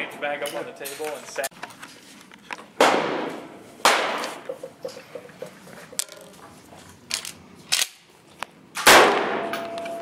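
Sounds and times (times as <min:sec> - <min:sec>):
gunshots with echo: 0:08.9 - 0:09.6.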